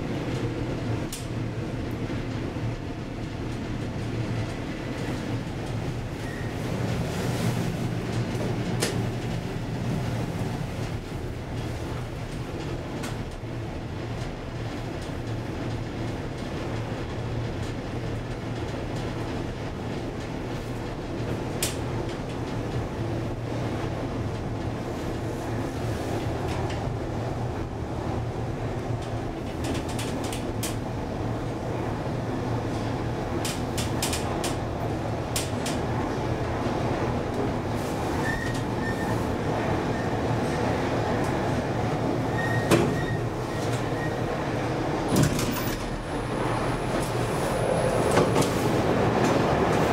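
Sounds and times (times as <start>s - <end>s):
elevator cabin rumble and hum: 0.0s - 49.9s
elevator cab humming: 26.8s - 49.9s.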